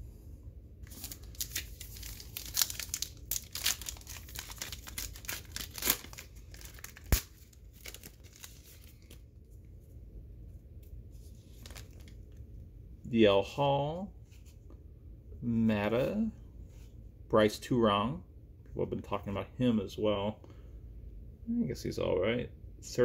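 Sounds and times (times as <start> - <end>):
wrapper crinkling and tearing: 0.8 - 9.3, 11.4 - 12.4.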